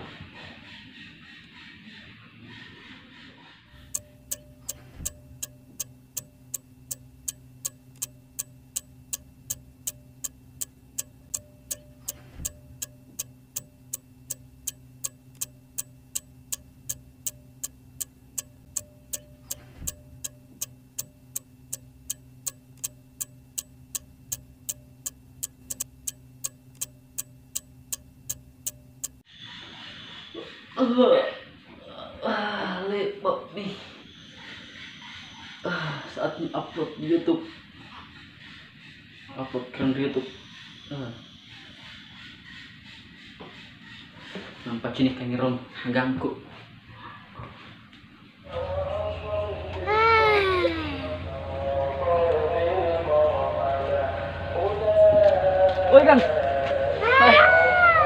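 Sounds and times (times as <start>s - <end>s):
clock ticking: 3.8s - 29.3s
low steady hum: 3.8s - 29.3s.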